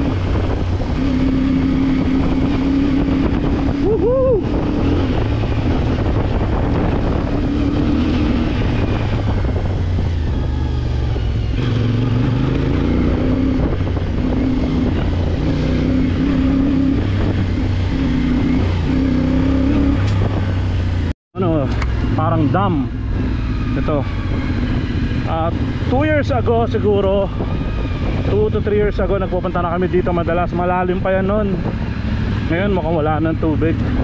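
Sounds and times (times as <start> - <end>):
wind rushing: 0.0 - 33.2
motorcycle engine revving: 0.0 - 34.0.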